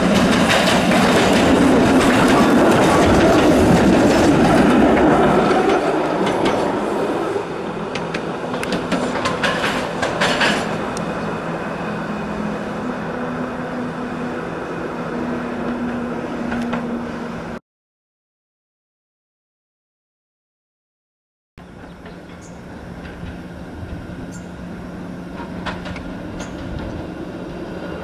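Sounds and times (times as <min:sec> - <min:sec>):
wheels clicking over rails: 0:00.0 - 0:06.8, 0:07.9 - 0:11.1
streetcar rolling: 0:00.0 - 0:17.6, 0:21.6 - 0:28.0.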